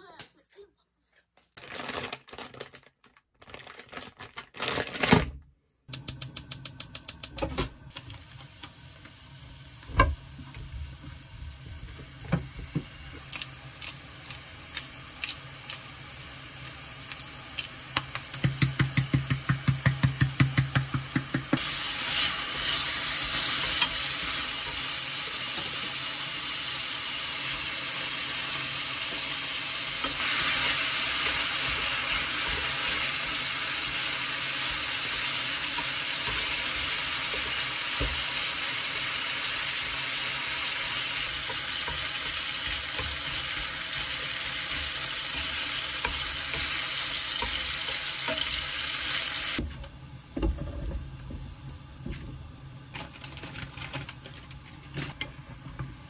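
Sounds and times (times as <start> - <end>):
meat sizzling in a pan: 7.9 - 49.6.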